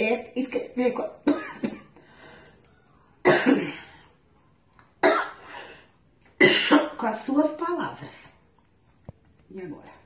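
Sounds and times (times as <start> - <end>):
woman coughing: 1.1 - 2.0, 3.2 - 3.9, 5.0 - 5.5, 6.4 - 7.1.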